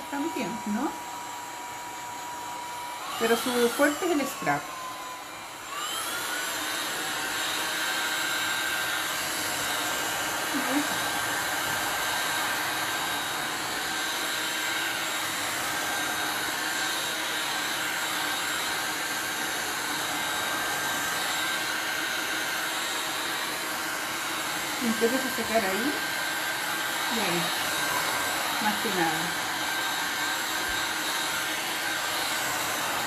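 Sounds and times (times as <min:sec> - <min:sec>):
heat gun blowing: 0:00.0 - 0:33.0.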